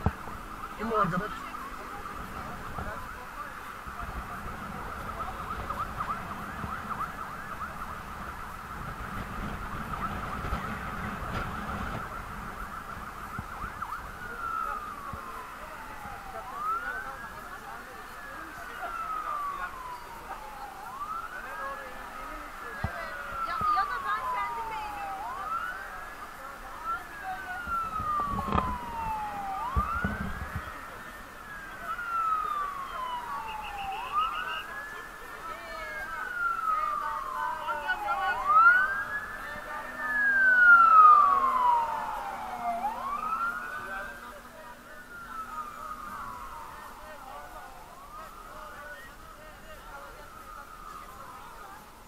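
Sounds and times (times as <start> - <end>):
electronic siren wailing: 0.1 - 52.0
wind on microphone: 3.9 - 16.2, 27.4 - 30.9.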